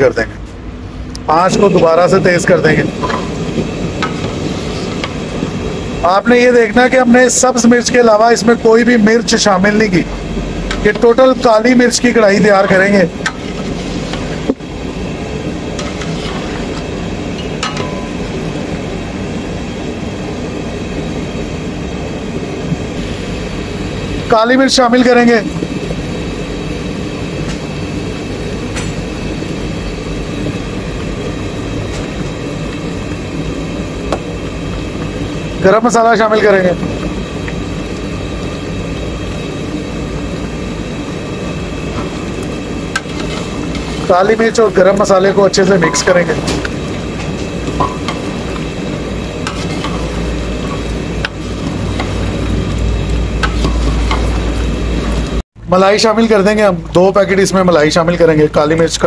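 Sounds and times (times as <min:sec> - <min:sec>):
gas burner rushing: 0:00.0 - 0:59.0
ladle stirring bubbling curry: 0:12.7 - 0:19.0, 0:36.8 - 0:55.2
ladle clinking against pot: 0:17.4 - 0:18.2, 0:45.8 - 0:46.7.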